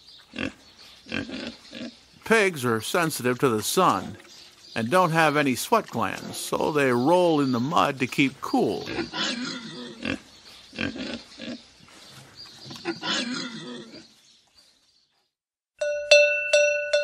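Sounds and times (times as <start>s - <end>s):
pigs grunting: 0.3s - 2.0s, 3.3s - 11.7s, 12.6s - 14.1s.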